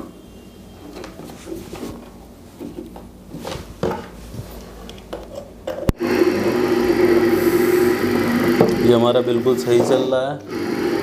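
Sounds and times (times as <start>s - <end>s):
handling knocks and rubs: 1.0s - 5.5s.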